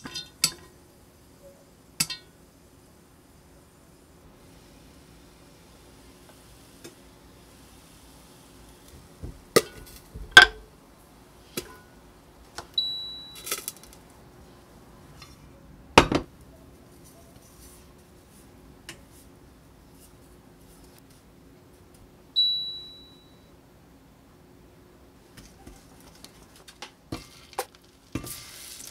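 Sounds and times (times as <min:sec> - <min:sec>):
pots and lid clinking: 0:00.0 - 0:00.7, 0:09.6 - 0:10.6
cooktop short beeps: 0:12.8 - 0:13.7, 0:22.4 - 0:23.5.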